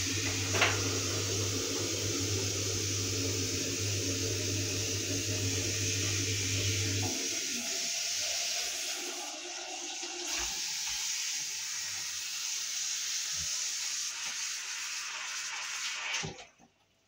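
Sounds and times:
tap running into basin: 0.0 - 7.4.

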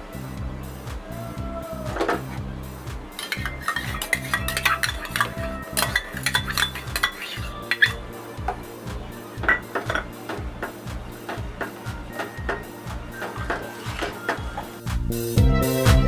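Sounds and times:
spatula scraping metal pan: 3.2 - 8.0.

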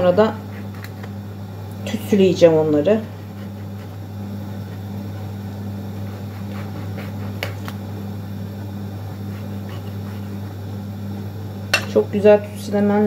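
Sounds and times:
steady low hum: 0.0 - 13.0
knife cutting on wooden board: 6.0 - 7.8, 9.0 - 10.6.

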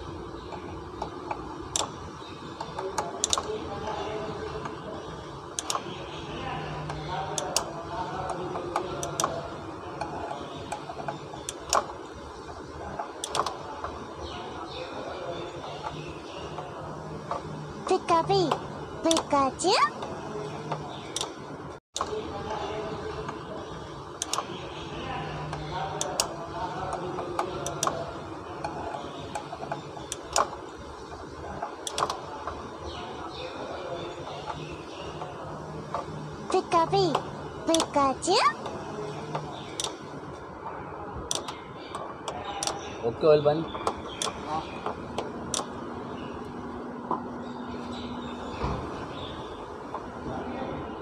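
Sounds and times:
metallic clicks and taps: 0.5 - 2.0, 2.6 - 3.5, 13.2 - 14.0, 20.7 - 21.4, 24.2 - 24.5, 31.6 - 32.2, 39.3 - 40.0, 41.3 - 42.8.

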